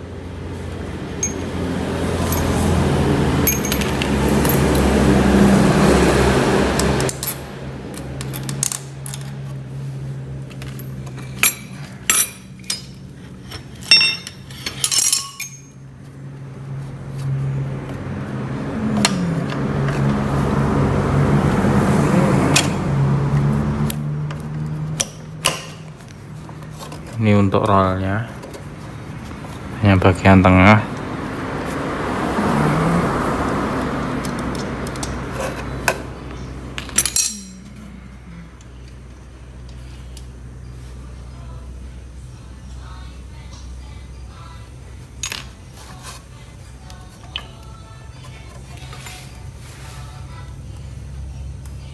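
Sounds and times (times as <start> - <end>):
low mechanical hum: 0.0 - 31.9, 32.9 - 51.9
metal tools clinking: 1.2 - 2.8, 3.4 - 4.9, 10.5 - 15.9, 36.8 - 38.1.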